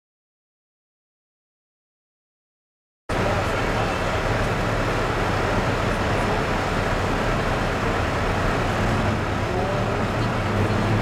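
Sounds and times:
diesel engine idling: 0:03.1 - 0:11.0.

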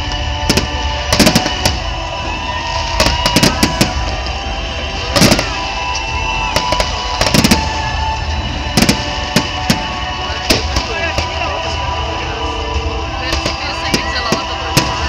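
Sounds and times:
firework shells bursting: 0:00.1 - 0:01.9, 0:05.1 - 0:11.4.

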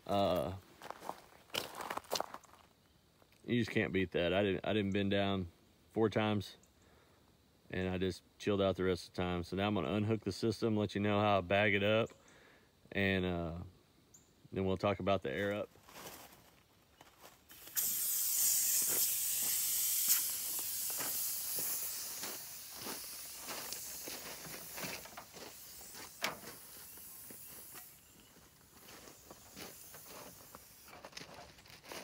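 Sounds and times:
footsteps on gravel: 0:00.3 - 0:02.7, 0:15.4 - 0:17.7, 0:18.8 - 0:32.0
compressed air hissing: 0:17.5 - 0:31.3.

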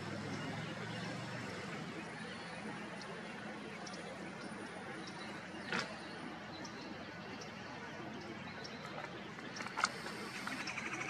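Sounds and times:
rapid high chatter: 0:06.2 - 0:11.0.

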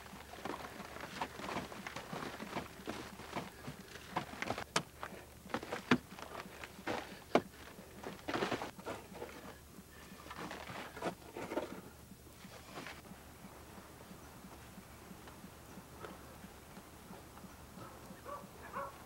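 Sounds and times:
scraping earth: 0:00.0 - 0:13.0
hand tool striking earth: 0:00.4 - 0:09.4.

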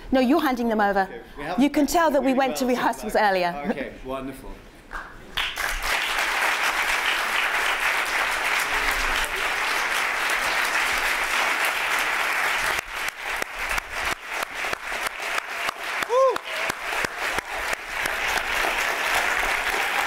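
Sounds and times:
audience applause: 0:05.4 - 0:20.0.

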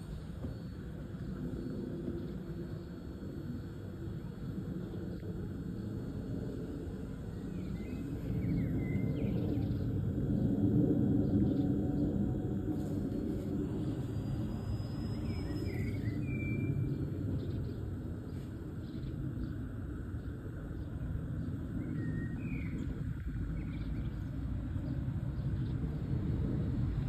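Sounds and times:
distant jet airliner rumble: 0:00.0 - 0:27.0
bird chirps: 0:14.0 - 0:17.8.

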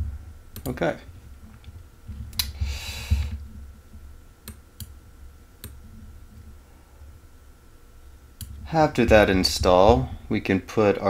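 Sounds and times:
computer clicks: 0:00.5 - 0:00.8, 0:04.4 - 0:05.0, 0:05.6 - 0:05.8
short hiss: 0:02.4 - 0:03.4.

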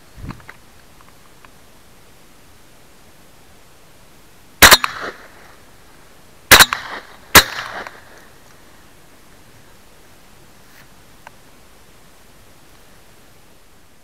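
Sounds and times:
gunshot echo: 0:04.6 - 0:05.4, 0:06.5 - 0:08.1
shotgun shots: 0:04.6 - 0:05.4, 0:06.5 - 0:08.1.

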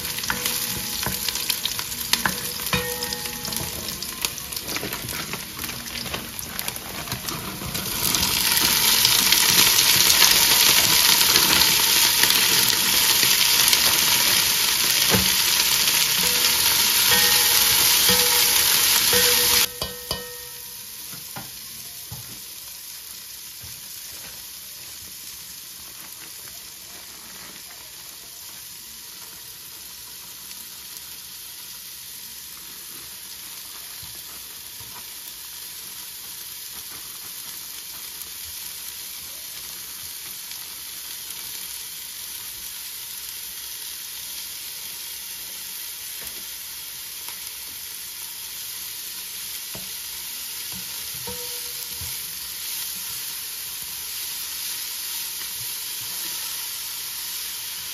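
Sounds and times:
spatula knocking pot: 0:00.0 - 0:05.3, 0:15.1 - 0:21.5, 0:50.8 - 0:52.2
beans sizzling in oil: 0:00.0 - 0:57.9.

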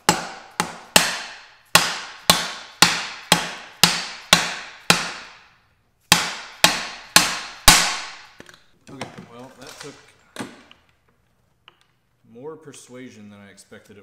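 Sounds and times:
hammer blows on plastic pipe: 0:00.0 - 0:05.5.

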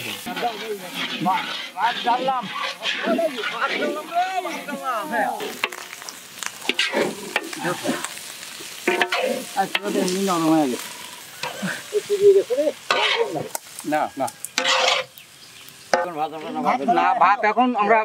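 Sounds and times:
metal spatula scraping pan: 0:00.0 - 0:06.0, 0:06.6 - 0:11.9, 0:12.8 - 0:13.6, 0:14.5 - 0:15.2
rice sizzling: 0:00.0 - 0:18.0.

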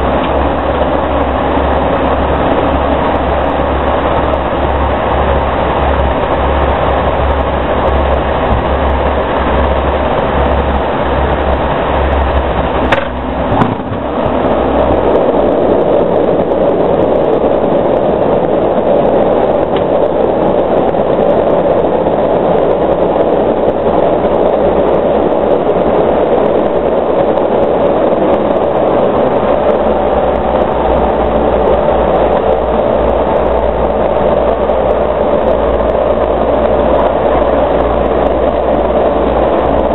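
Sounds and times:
turboprop cabin drone: 0:00.0 - 0:39.9.

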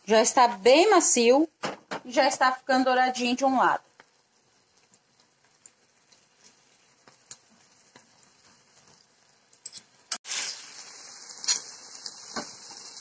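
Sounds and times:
chicken sizzling in pan: 0:02.4 - 0:13.0
utensil clicking in frying pan: 0:03.9 - 0:10.6.

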